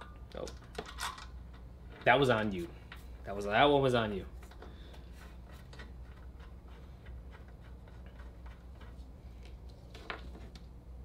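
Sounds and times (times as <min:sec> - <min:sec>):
metal parts and tools clicking: 0:00.0 - 0:03.0
steady low hum: 0:00.0 - 0:11.0.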